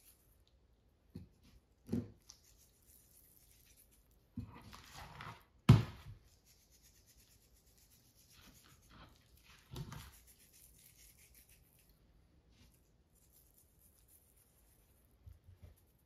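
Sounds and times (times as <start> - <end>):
soft rubbing: 6.2 - 16.0.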